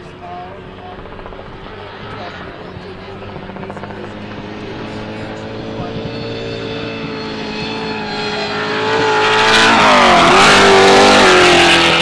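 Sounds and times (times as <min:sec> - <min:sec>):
truck engine at high revs passing: 0:03.4 - 0:12.0.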